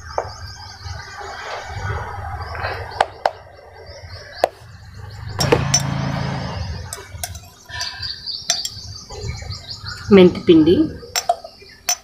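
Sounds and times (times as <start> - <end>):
low hum: 0.5 - 8.2
metal spoon clinking on bowl: 5.4 - 6.0, 6.9 - 8.8, 11.1 - 12.0.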